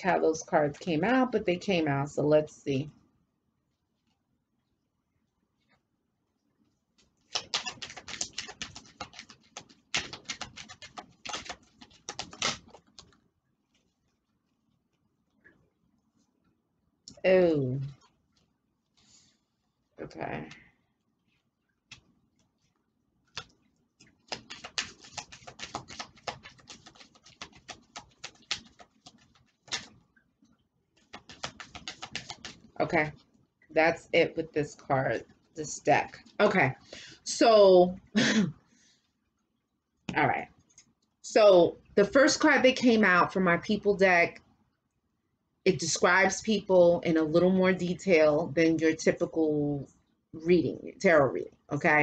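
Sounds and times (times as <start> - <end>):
cards being shuffled: 7.0 - 14.0, 21.9 - 22.7, 23.3 - 30.0, 31.0 - 33.2.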